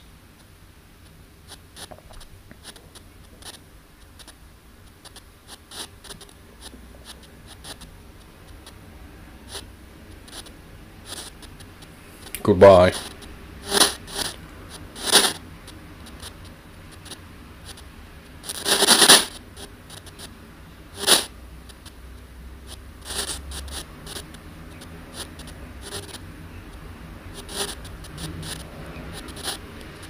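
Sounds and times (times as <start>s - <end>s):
radio hiss and crackle bursts: 0.4s - 30.0s.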